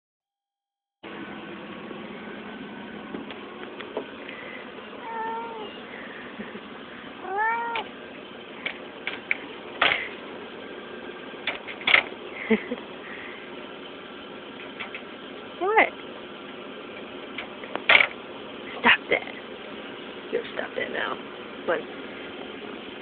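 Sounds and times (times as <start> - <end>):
cat meowing: 5.0 - 5.8, 7.2 - 7.9.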